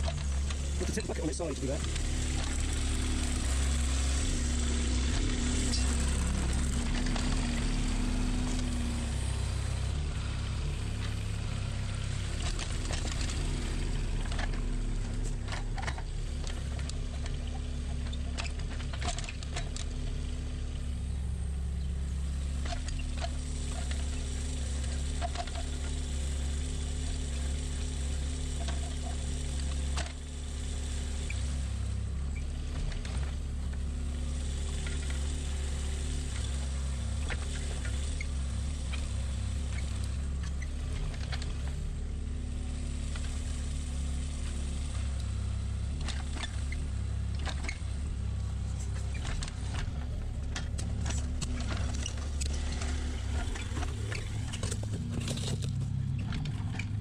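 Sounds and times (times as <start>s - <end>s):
excavator diesel engine running: 0.0s - 57.0s
bucket clinking and scraping stones: 53.7s - 56.0s.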